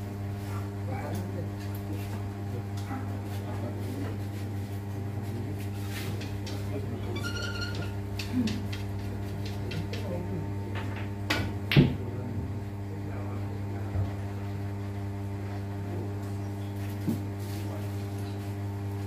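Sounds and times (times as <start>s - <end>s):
steady electrical hum: 0.0s - 19.0s
billiard balls clacking: 6.2s - 10.1s.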